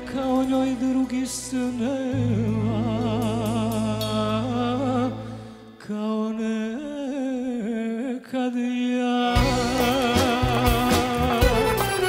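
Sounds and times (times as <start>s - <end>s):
live band music: 0.0s - 5.8s, 9.4s - 12.0s
solo melodic line: 0.1s - 5.6s.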